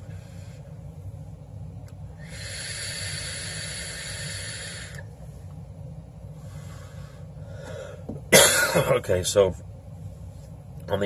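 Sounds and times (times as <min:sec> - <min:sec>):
breathy exhale: 0:02.2 - 0:05.1, 0:06.4 - 0:08.1
vape coil sizzling hiss: 0:02.2 - 0:05.1.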